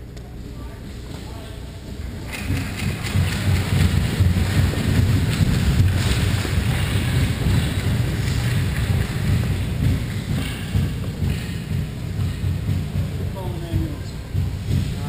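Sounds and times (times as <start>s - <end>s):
low rumbling on microphone: 0.0s - 15.0s
skates and sticks scraping ice: 2.4s - 11.8s.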